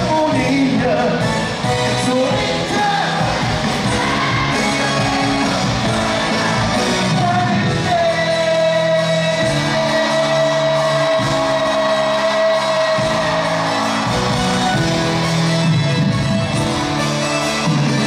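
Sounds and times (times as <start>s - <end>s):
live pop-rock band playing: 0.0s - 18.0s
crowd shouting: 2.6s - 8.7s, 9.4s - 15.9s.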